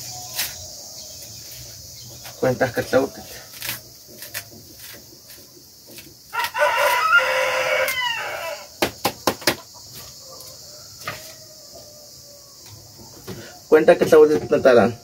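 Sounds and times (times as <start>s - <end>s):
rooster crowing: 6.3s - 8.8s, 10.0s - 13.5s
sharp knocks: 8.8s - 9.6s.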